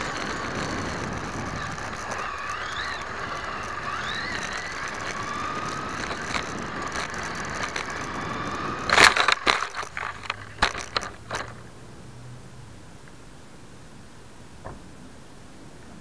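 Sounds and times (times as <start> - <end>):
toy truck crashing: 0.0 - 11.6
electric motor whining: 0.0 - 11.7.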